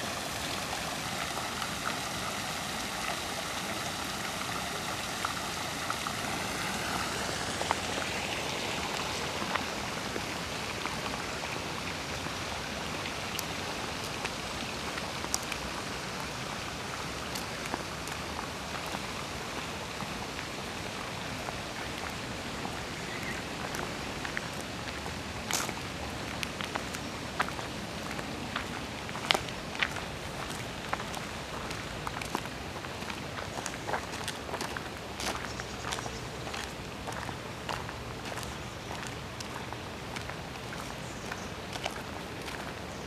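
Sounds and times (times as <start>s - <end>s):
fountain water splashing into basin: 0.0s - 42.9s.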